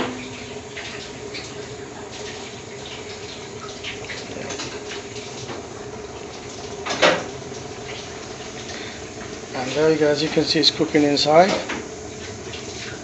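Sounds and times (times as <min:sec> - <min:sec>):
gas burner rushing hiss: 0:06.8 - 0:12.1.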